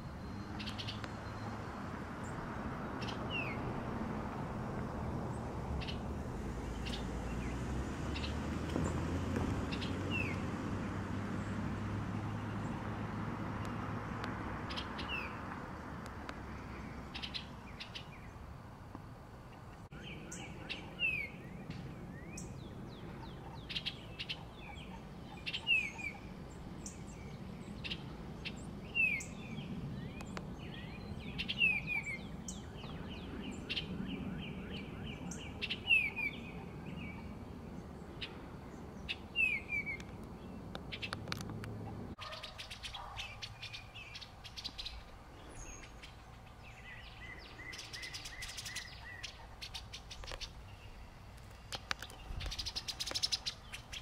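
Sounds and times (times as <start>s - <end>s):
bird calling with falling chirps: 19.6s - 37.4s, 38.1s - 41.2s, 42.2s - 54.0s.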